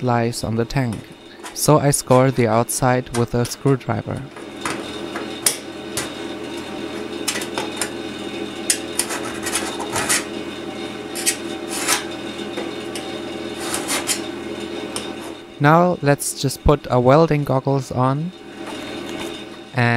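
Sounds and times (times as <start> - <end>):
steady low hum: 0.0 - 19.9
screwdriver scratching sheet steel: 8.6 - 10.4, 11.1 - 12.1, 12.9 - 14.3.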